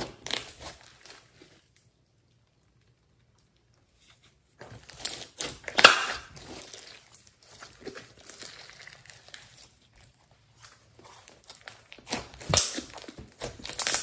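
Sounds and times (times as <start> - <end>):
slime crackling while kneaded: 0.0 - 2.0, 4.6 - 14.0.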